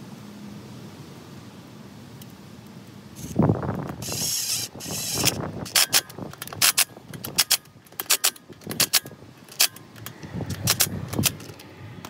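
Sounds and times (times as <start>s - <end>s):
metal socket clicking and clinking: 4.9s - 11.7s.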